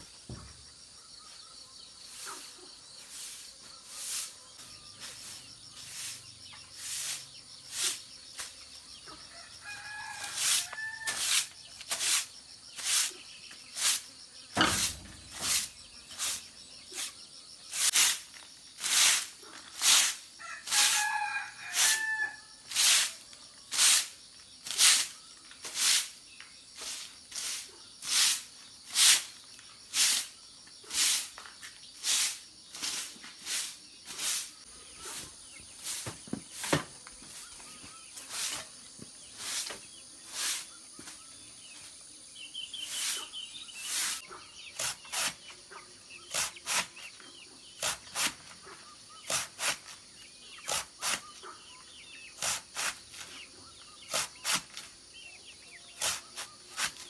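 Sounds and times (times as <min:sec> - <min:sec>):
rooster crowing: 0:09.3 - 0:11.4, 0:20.4 - 0:22.6
heavy thump: 0:14.6 - 0:15.6
sharp stroke sound: 0:14.6 - 0:16.4.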